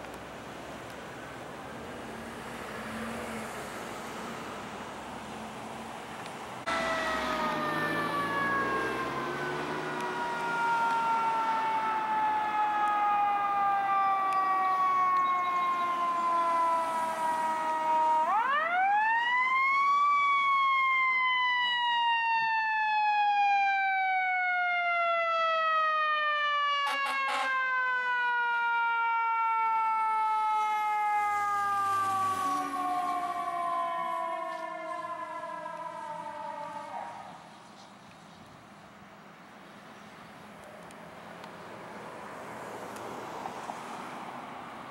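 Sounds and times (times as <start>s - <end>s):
diesel engine: 0.2s - 12.6s
fire engine horn toots: 15.2s - 16.0s, 26.8s - 27.6s.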